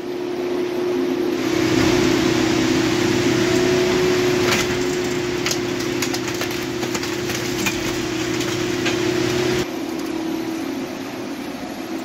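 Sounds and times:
engine and hydraulics droning: 0.0 - 12.0
metallic cracks and crunches: 4.3 - 10.1.

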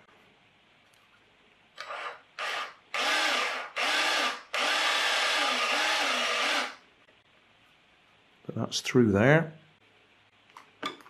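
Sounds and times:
small electric motor running: 1.8 - 6.8.

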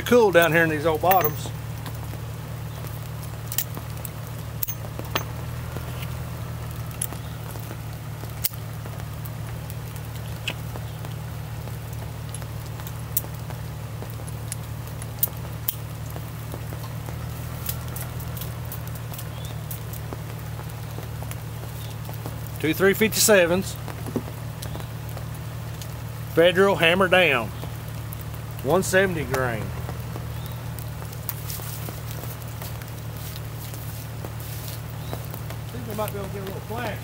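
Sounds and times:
steady low hum: 0.0 - 37.0
metallic clicks of revolvers: 1.1 - 1.5, 4.6 - 5.2.

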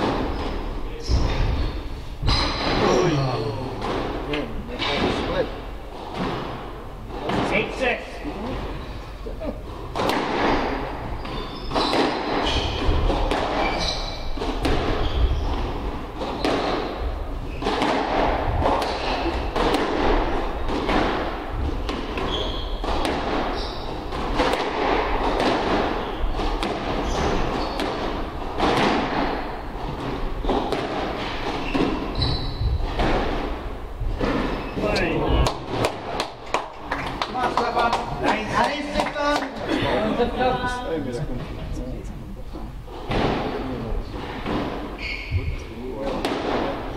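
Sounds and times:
squash ball hitting rackets and walls: 0.0 - 3.0, 3.7 - 8.9, 9.6 - 39.7, 42.9 - 46.9
shoe squeaks on court floor: 11.1 - 17.8, 22.2 - 24.1, 25.9 - 28.0, 31.6 - 33.0, 34.4 - 35.0, 44.9 - 45.8.

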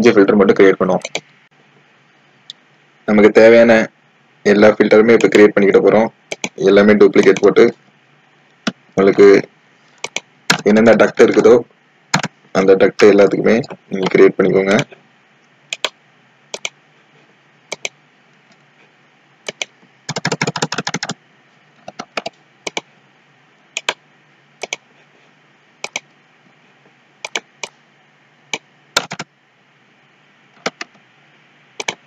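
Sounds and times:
computer mouse clicks: 1.0 - 1.3, 6.3 - 6.6, 7.2 - 7.6, 10.0 - 10.6, 12.2 - 12.4, 15.7 - 16.8, 17.7 - 18.0, 19.4 - 21.2, 21.8 - 22.9, 23.8 - 24.0, 24.6 - 24.8, 25.8 - 26.1, 27.2 - 27.8, 28.5 - 29.3, 30.6 - 31.0, 31.8 - 32.0
keyboard typing: 1.0 - 1.3, 5.1 - 5.5, 6.3 - 6.6, 7.2 - 7.6, 10.0 - 10.7, 12.1 - 12.4, 15.7 - 16.8, 17.7 - 18.0, 19.4 - 21.2, 21.8 - 22.9, 23.8 - 24.0, 24.6 - 24.8, 25.8 - 26.1, 27.2 - 27.8, 28.5 - 29.3, 30.6 - 31.0, 31.8 - 32.0.

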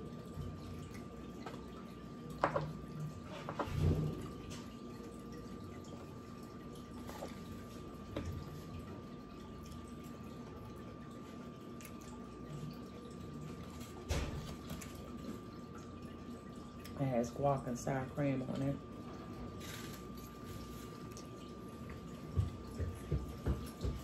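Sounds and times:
wet chewing sounds: 11.7 - 12.2.

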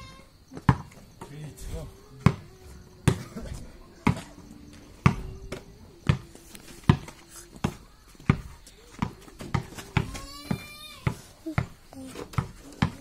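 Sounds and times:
basketball bouncing on dirt: 0.5 - 1.3, 2.2 - 3.3, 4.0 - 4.3, 5.0 - 13.0.

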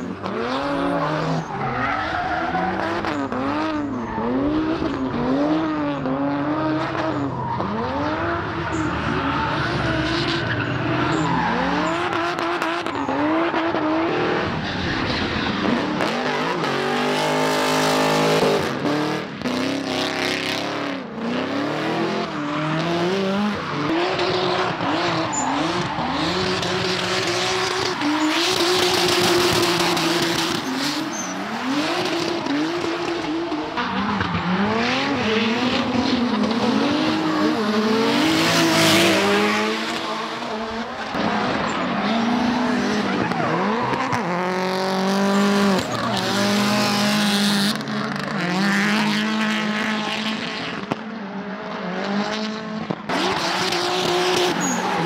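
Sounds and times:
tyre squeal: 0.0 - 5.1, 7.0 - 13.3, 23.6 - 32.6, 53.4 - 55.0
car engines revving: 0.0 - 55.0.

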